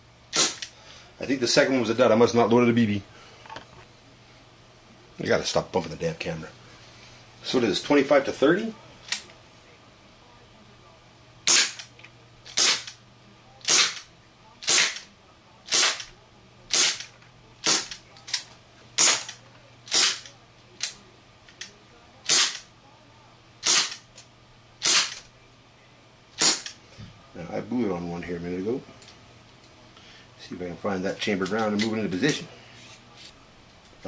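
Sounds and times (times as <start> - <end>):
airsoft gun shots: 0.3 - 0.6, 11.5 - 11.8, 12.6 - 12.9, 13.7 - 14.0, 14.6 - 15.0, 19.9 - 20.2, 22.3 - 22.6, 23.6 - 24.0, 24.8 - 25.2, 26.4 - 26.7.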